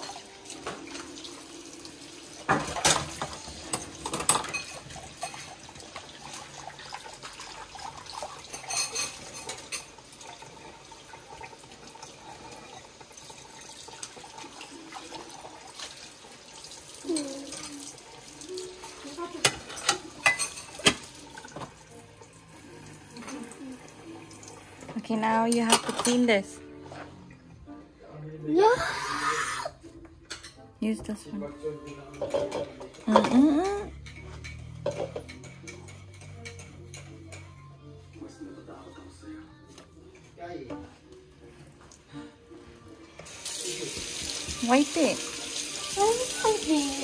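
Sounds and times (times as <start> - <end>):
tap water running into sink: 0.0 - 26.2, 32.2 - 37.0, 43.2 - 47.0
dishes clinking and clattering: 0.0 - 27.5, 30.1 - 38.3, 40.1 - 41.9.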